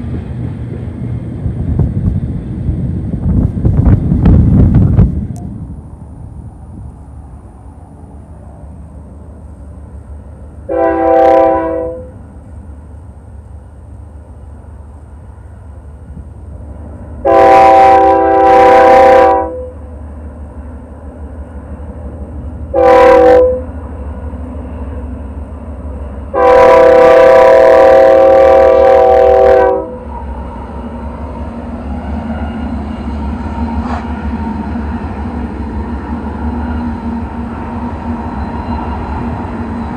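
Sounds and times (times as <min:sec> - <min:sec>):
wind on microphone: 0:00.0 - 0:07.6
train rumbling: 0:00.0 - 0:39.9
locomotive air horn blasts: 0:10.7 - 0:12.2, 0:17.2 - 0:19.8, 0:22.7 - 0:23.7, 0:26.3 - 0:30.1.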